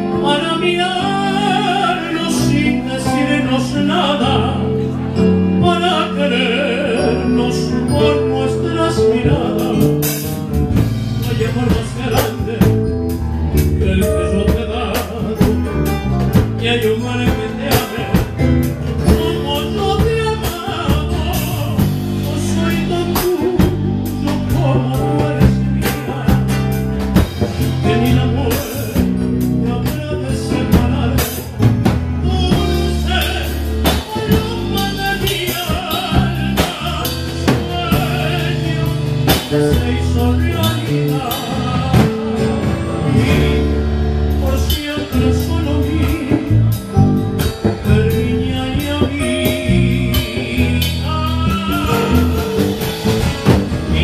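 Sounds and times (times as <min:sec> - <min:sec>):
bass line: 0:00.0 - 0:54.0
electronic keyboard: 0:00.0 - 0:54.0
drum hits: 0:30.7 - 0:54.0.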